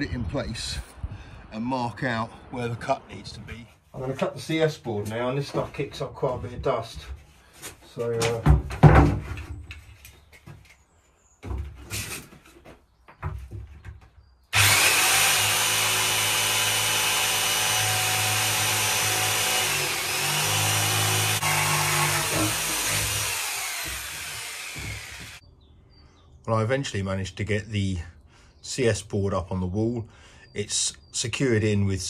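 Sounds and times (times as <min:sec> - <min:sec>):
knocks of board and saw: 0:08.2 - 0:09.5, 0:14.6 - 0:25.4
electric jigsaw cutting board: 0:14.6 - 0:25.4.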